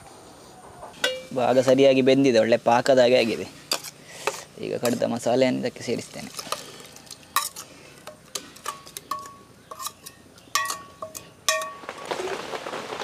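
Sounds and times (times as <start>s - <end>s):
curry bubbling hiss: 1.3s - 8.6s
metal utensil scraping steel pot: 3.7s - 5.3s, 6.1s - 11.8s.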